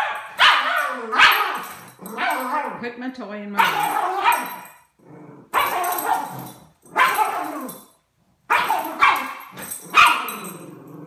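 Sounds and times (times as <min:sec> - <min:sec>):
dog barking: 0:00.0 - 0:02.7, 0:03.6 - 0:04.7, 0:07.0 - 0:07.6, 0:08.5 - 0:10.5.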